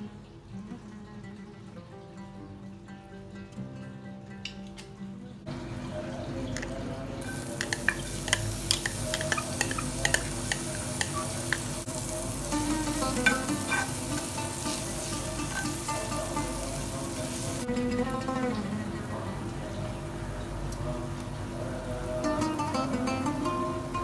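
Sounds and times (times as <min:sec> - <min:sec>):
chillies sizzling in oil: 0:05.5 - 0:20.7.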